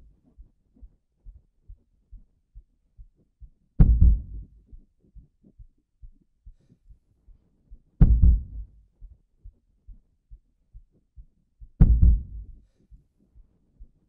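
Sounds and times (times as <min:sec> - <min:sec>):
low thudding pulse: 0:01.2 - 0:06.1, 0:08.0 - 0:12.7
deep hits: 0:03.8 - 0:04.6, 0:08.0 - 0:08.8, 0:11.8 - 0:12.6.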